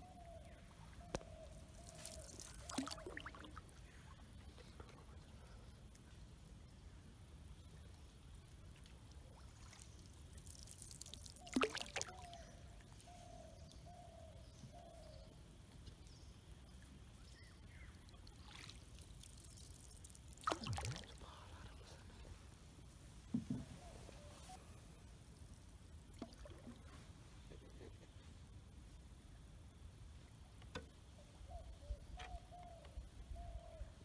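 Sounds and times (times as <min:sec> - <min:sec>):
water splashing and trickling: 0:01.1 - 0:05.3, 0:07.6 - 0:13.1, 0:16.7 - 0:21.9, 0:26.0 - 0:27.3.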